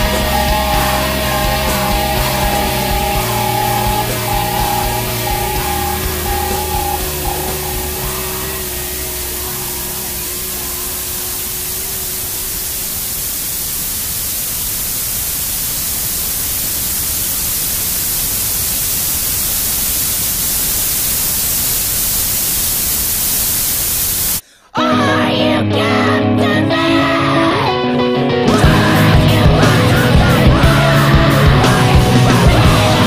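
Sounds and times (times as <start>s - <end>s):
faint held tones: 0.0s - 24.4s
loud static hiss: 0.0s - 24.4s, 28.5s - 33.0s.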